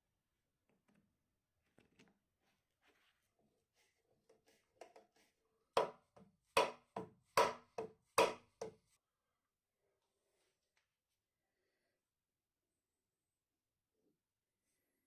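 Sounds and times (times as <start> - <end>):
hammer striking steel bar: 7.4 - 8.5.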